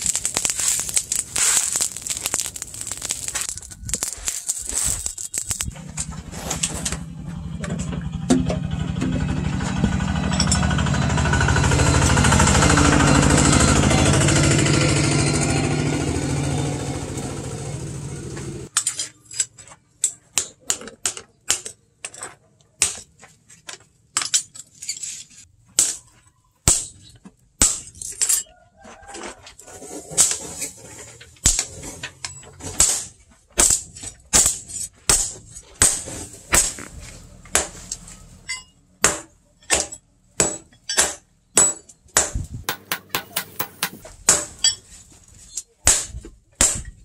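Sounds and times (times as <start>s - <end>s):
loud mechanical engine noise: 5.4s - 18.7s
hammer blows on hot steel: 42.2s - 44.8s.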